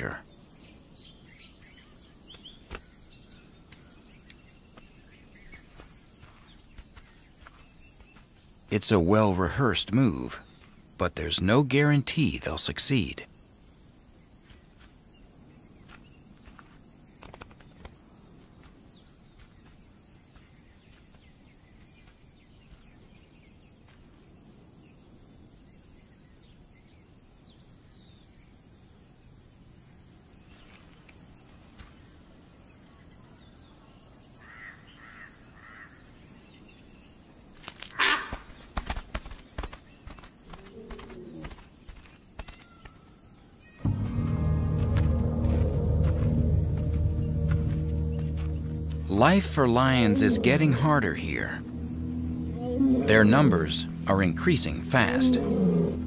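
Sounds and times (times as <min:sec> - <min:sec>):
small birds chirping: 0:00.0 - 0:56.0
crackling in dry leaves and twigs: 0:37.5 - 0:43.1
high insect drone: 0:43.8 - 0:56.0
short low call: 0:43.9 - 0:56.0.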